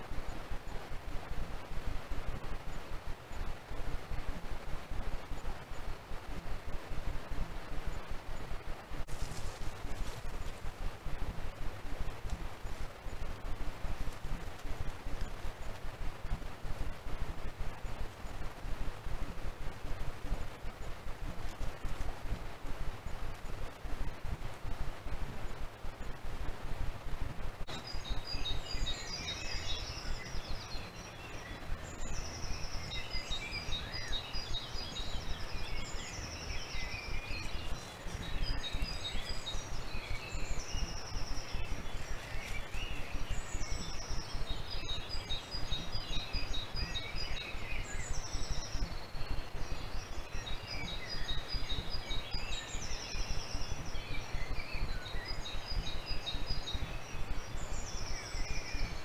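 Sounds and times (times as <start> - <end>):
low rumbling noise: 0.0 - 59.0
birds singing: 27.7 - 59.0.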